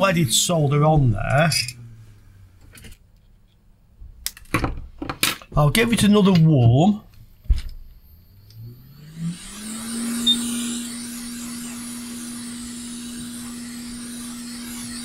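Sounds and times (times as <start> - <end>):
hot air fan humming and hissing: 6.5 - 15.0.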